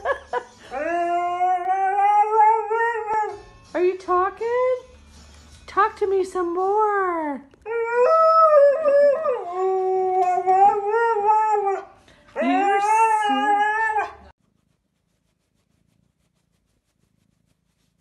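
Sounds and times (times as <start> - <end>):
dog howling: 7.7 - 14.3.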